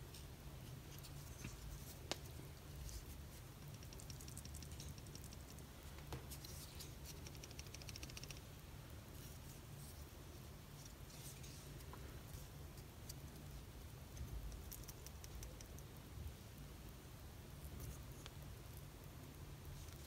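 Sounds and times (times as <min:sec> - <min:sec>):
fine ticks: 0:03.6 - 0:08.5.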